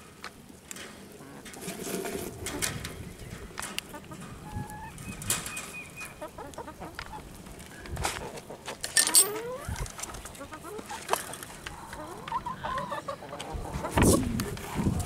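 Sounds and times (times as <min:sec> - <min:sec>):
wooden gate and wire rattling: 0:00.6 - 0:11.8
chickens clucking: 0:01.0 - 0:15.0.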